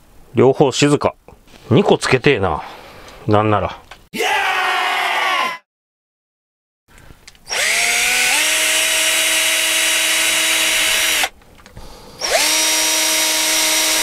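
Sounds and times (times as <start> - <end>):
cordless drill spinning: 7.4 - 11.3, 12.2 - 14.0.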